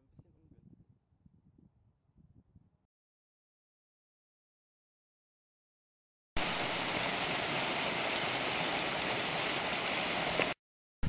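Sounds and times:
stream rushing over rocks: 6.4 - 10.6.

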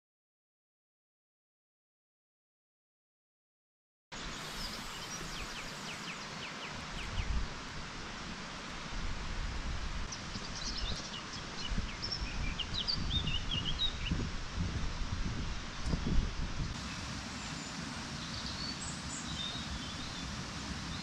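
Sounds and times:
small birds chirping: 4.2 - 7.4, 10.1 - 14.2, 16.6 - 21.0
outdoor hiss: 4.2 - 12.8, 14.1 - 21.0
wind buffeting microphone: 6.8 - 21.0.

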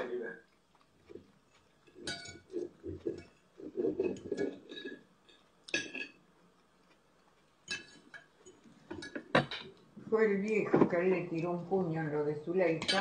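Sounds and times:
cutlery knocking on plate: 8.9 - 9.7.

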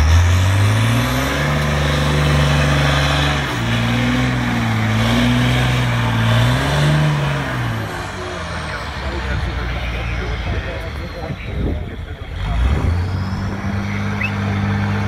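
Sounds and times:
truck diesel engine revving: 0.0 - 15.0.

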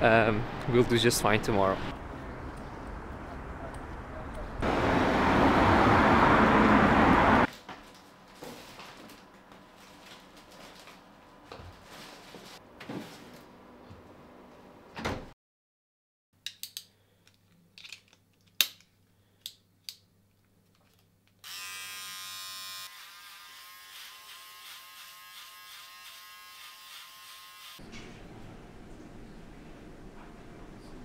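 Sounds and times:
electric trimmer buzzing: 21.4 - 27.8.

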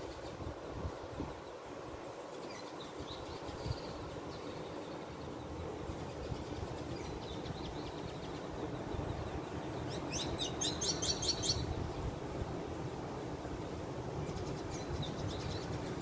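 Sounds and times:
bird chirping: 2.4 - 11.7.

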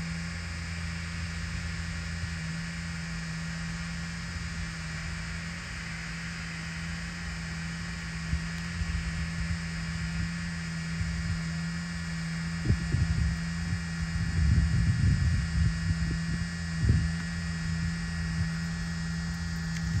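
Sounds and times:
drone propellers humming: 0.0 - 20.0
wind buffeting microphone: 12.6 - 17.2.

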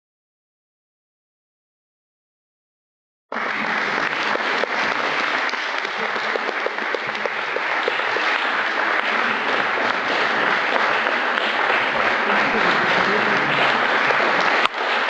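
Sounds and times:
audience applauding: 3.3 - 15.0.

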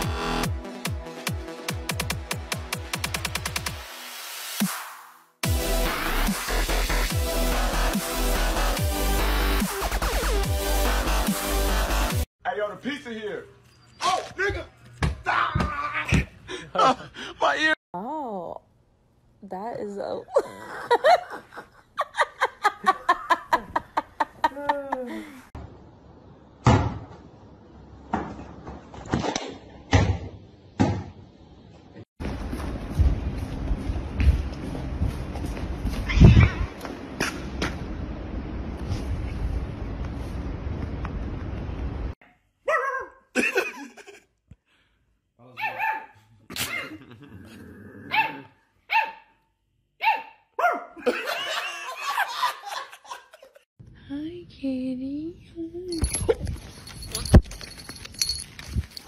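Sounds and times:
people laughing: 20.4 - 25.4, 51.0 - 53.6
rustling noise: 38.6 - 41.6, 56.0 - 59.0
puppy yelping barks: 42.6 - 43.2, 45.6 - 46.8, 48.1 - 49.3, 50.0 - 51.0.

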